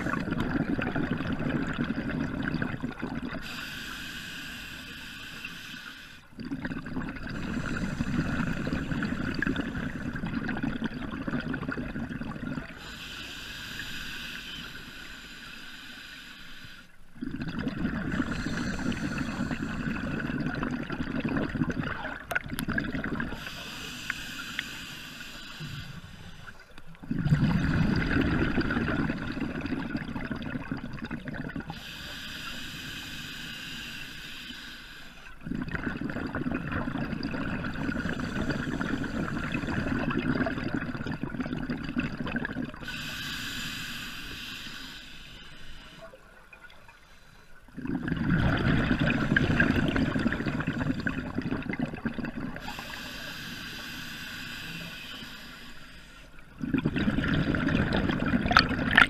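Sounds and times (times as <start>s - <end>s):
exhaled bubbles rushing: 0.0s - 3.5s, 6.4s - 12.8s, 17.2s - 23.6s, 27.0s - 31.7s, 35.4s - 42.9s, 47.8s - 52.9s, 56.5s - 59.0s
regulator inhale hiss: 3.4s - 6.3s, 7.4s - 10.1s, 12.8s - 17.0s, 18.1s - 20.1s, 23.3s - 26.7s, 31.7s - 35.4s, 37.8s - 40.0s, 42.8s - 46.2s, 47.0s - 47.7s, 52.6s - 56.5s.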